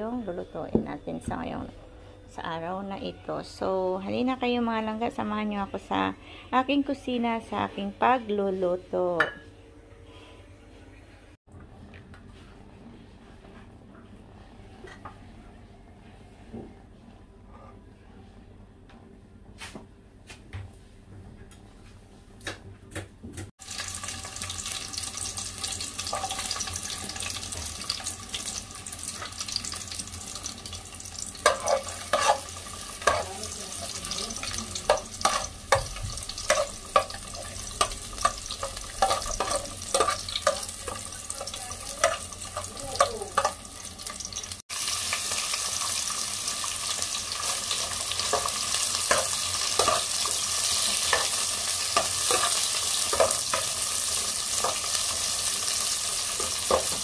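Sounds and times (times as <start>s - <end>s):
onions sizzling in hot oil: 23.6s - 57.0s
metal ladle scraping and knocking pot: 31.4s - 33.3s.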